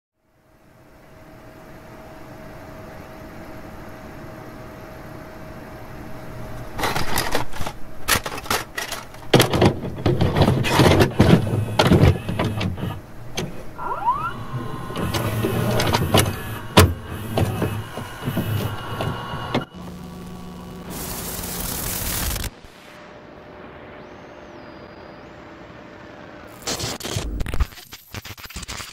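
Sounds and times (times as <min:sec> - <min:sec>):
tape static crackling hiss: 0:00.4 - 0:28.9
low hum: 0:00.6 - 0:26.5
rising whistle: 0:13.8 - 0:15.8, 0:23.9 - 0:25.8.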